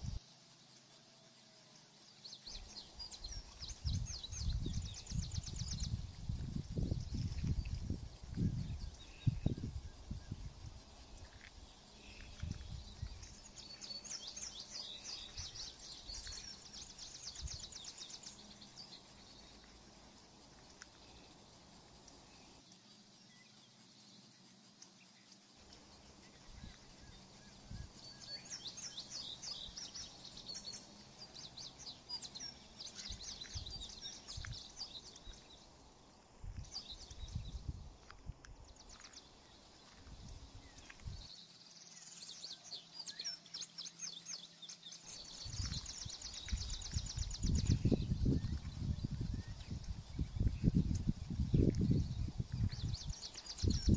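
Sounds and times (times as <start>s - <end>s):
songbirds chirping: 0.0s - 53.9s.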